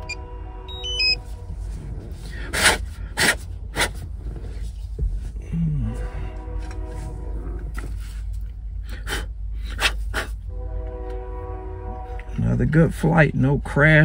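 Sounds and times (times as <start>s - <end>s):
high electronic beeps: 0.0s - 1.2s
low rumble: 0.0s - 14.0s.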